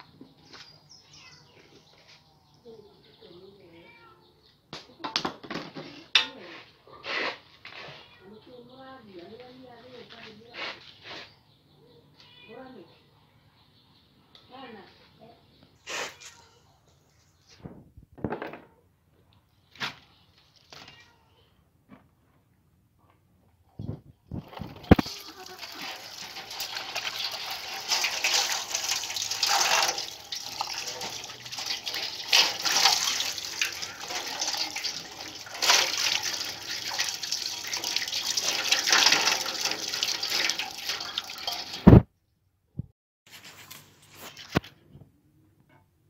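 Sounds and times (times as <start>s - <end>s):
tap water splashing into steel basin: 24.6s - 42.0s
thump: 41.9s - 42.1s.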